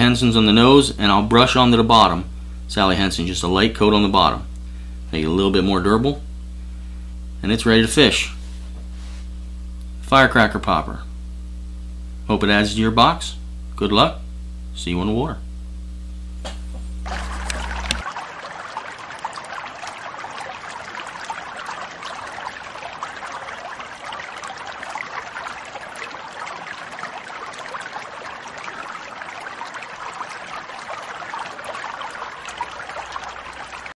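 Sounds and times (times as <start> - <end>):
stream water babbling: 17.0 - 34.0.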